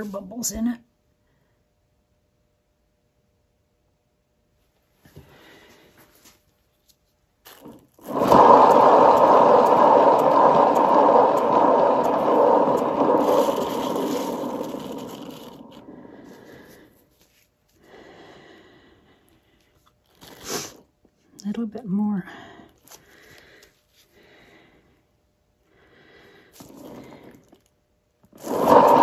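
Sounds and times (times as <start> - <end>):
turntable rumbling scrape: 7.6 - 16.7, 26.6 - 27.6, 28.3 - 29.0.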